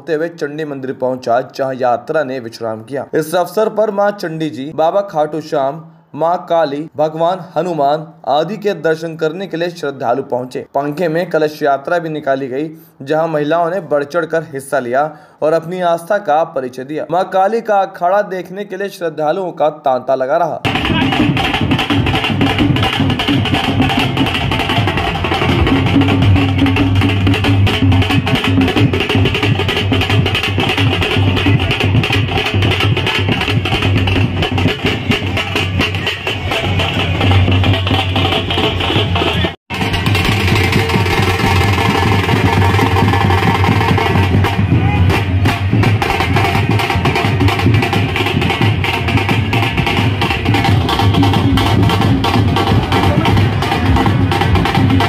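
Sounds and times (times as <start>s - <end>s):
fast steady drumming: 20.6s - 55.0s
loud procession music: 20.6s - 55.0s
heavy low hum: 20.7s - 45.8s.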